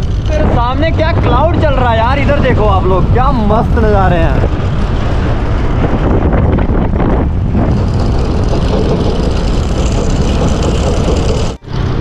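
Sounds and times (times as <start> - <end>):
tyres on road: 0.0 - 12.0
wind buffeting microphone: 0.0 - 12.0
scooter engine running: 6.2 - 12.0.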